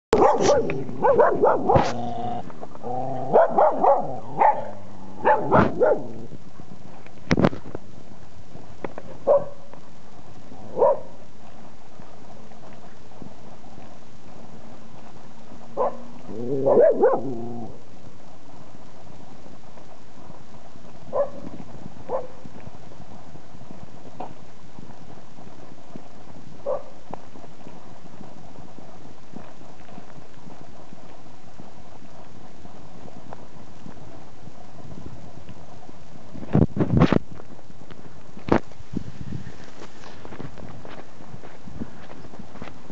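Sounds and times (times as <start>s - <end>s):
dogs barking: 0.2s - 2.2s, 3.2s - 6.2s, 9.2s - 9.6s, 10.7s - 11.1s, 15.8s - 17.6s, 21.1s - 21.4s, 22.1s - 22.4s, 26.6s - 26.9s.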